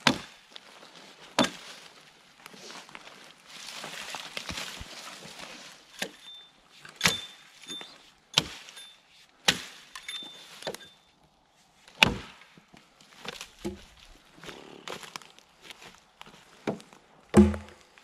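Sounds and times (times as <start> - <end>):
axe chopping wood: 0.0 - 0.4, 1.4 - 1.6, 7.0 - 7.4, 9.4 - 9.8, 12.0 - 12.5, 16.6 - 17.9
branches rustling: 0.0 - 18.0.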